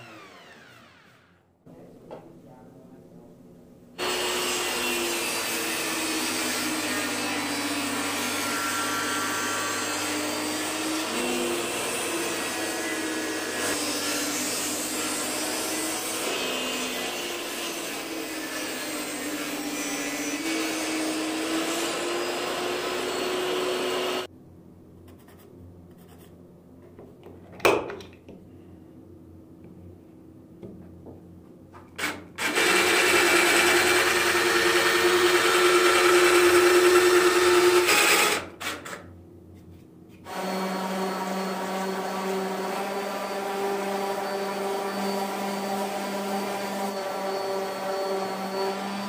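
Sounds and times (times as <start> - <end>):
table saw cutting wood: 0.0 - 1.4, 4.0 - 24.3, 32.0 - 39.0, 40.2 - 49.0.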